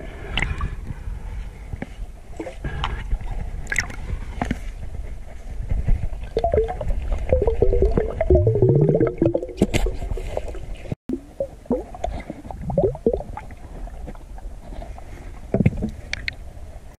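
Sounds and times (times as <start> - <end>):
knocks and clicks underwater: 1.8 - 14.4, 15.4 - 16.4
water gurgling underwater: 6.2 - 14.1.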